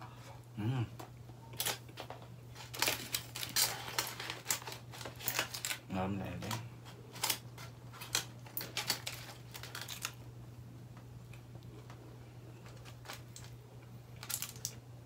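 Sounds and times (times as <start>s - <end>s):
aluminium foil crinkling: 1.5s - 10.2s, 12.6s - 14.8s.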